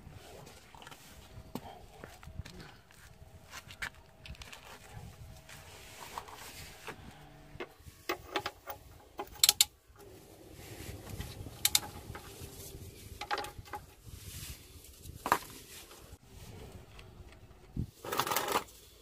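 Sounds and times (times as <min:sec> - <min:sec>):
ratchet metallic clicks and clinks: 0:09.3 - 0:09.7.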